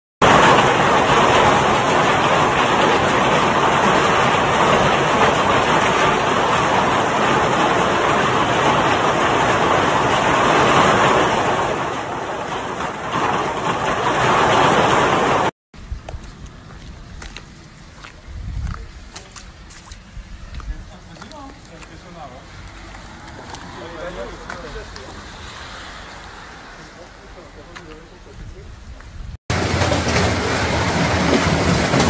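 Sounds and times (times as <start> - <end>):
hailstones beating down: 0.2 - 15.5, 29.5 - 32.0
strong wind: 0.2 - 21.2, 28.2 - 32.0.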